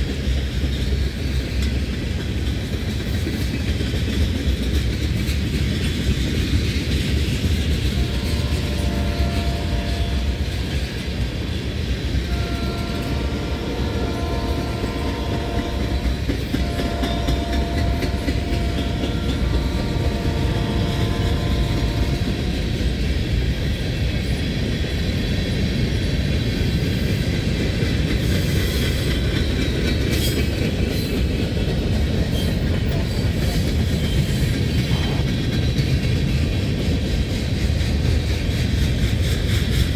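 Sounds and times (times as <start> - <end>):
freight train rumbling and rattling: 0.0 - 39.9
wheels clicking over rail joints: 0.0 - 39.9
distant locomotive horn blasts: 7.6 - 23.4.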